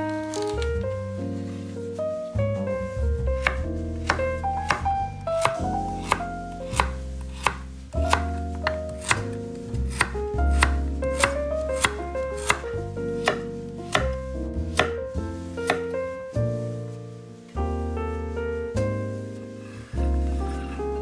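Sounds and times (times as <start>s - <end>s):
background music: 0.0s - 21.0s
knife chopping on wooden board: 3.4s - 4.8s, 5.4s - 9.3s, 9.9s - 15.0s, 15.6s - 15.9s.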